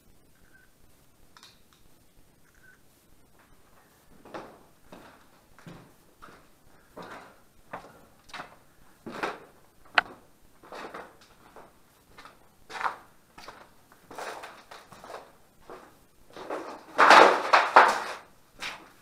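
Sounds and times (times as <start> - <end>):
footsteps and scuffs: 3.4 - 16.8.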